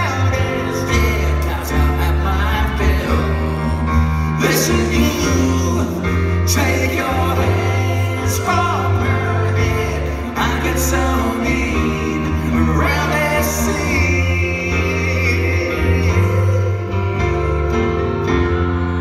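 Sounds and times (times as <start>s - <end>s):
electric bass line: 0.0s - 19.0s
electric keyboards: 0.0s - 19.0s
man singing: 0.0s - 19.0s.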